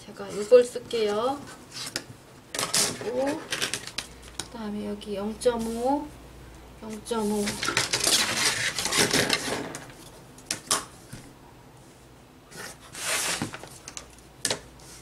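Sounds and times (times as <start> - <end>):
paper rustling: 7.3 - 10.0, 12.6 - 14.2.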